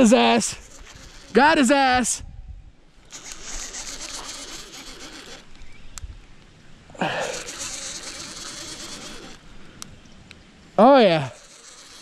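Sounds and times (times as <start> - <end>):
fishing reel whirring: 0.0 - 1.6, 3.1 - 5.6, 7.2 - 9.4, 11.2 - 12.0.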